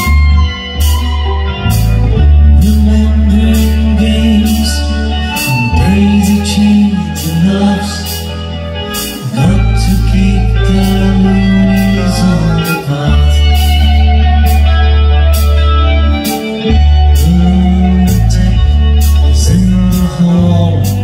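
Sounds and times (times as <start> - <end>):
electric bass: 0.0 - 21.0
person singing: 0.0 - 21.0
drums and cymbals: 3.6 - 14.7.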